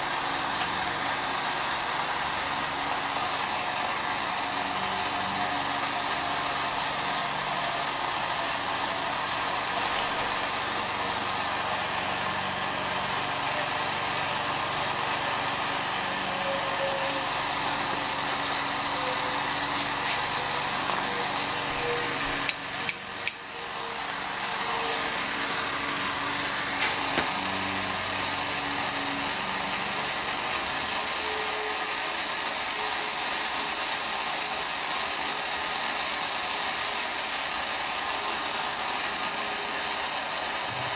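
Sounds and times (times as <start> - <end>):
workshop background noise: 0.0 - 40.9
pliers clicking on wire: 22.4 - 23.4.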